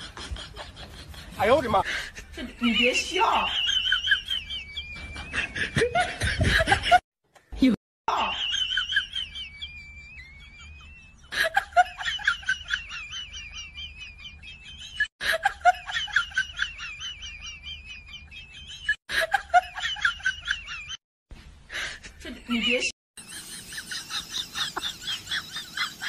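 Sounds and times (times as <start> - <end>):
high-pitched laughter: 8.1 - 21.0, 22.2 - 26.0.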